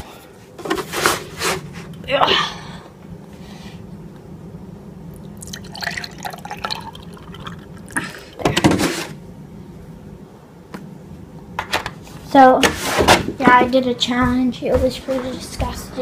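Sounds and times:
milk glugging into a glass: 5.3 - 8.4.

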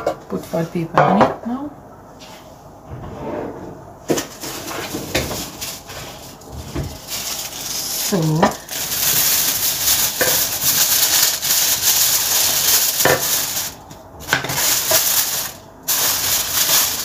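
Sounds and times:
aluminium foil crinkling: 4.2 - 17.0.

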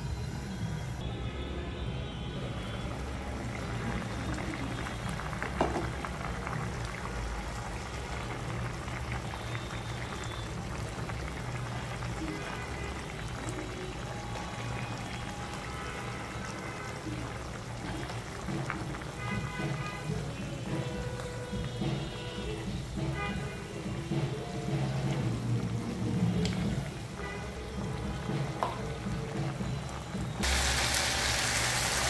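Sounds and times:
thick sauce bubbling and popping: 3.2 - 23.4, 25.3 - 30.5.

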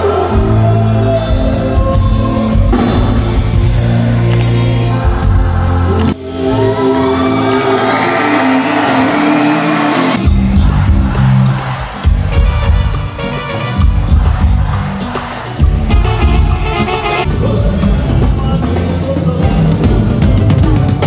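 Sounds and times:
band music with singer: 0.0 - 21.0.

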